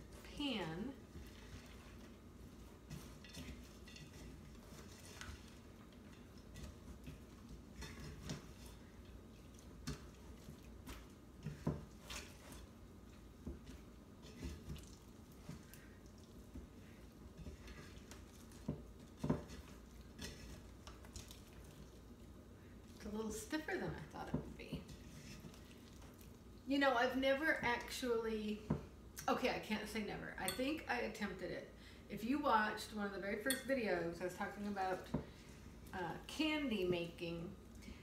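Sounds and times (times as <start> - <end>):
spatula scraping a saucepan: 0.0 - 12.8, 13.4 - 16.0, 16.6 - 22.0, 24.6 - 26.1.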